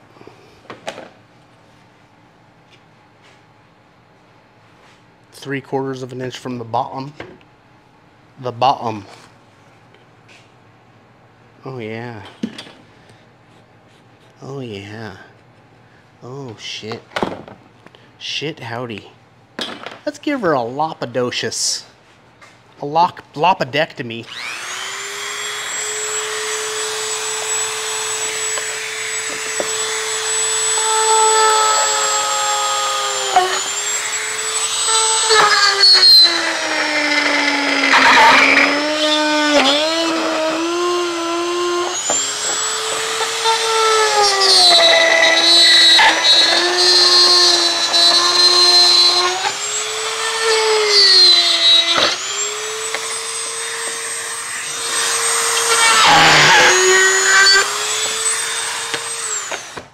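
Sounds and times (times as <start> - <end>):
rotary tool cutting plastic: 26.8 - 59.9.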